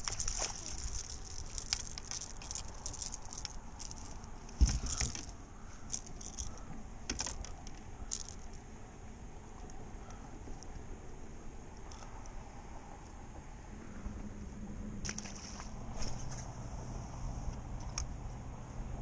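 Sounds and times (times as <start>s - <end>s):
water pattering off net: 0.0s - 5.3s, 15.0s - 15.8s
light clicking and jangling: 0.0s - 8.6s.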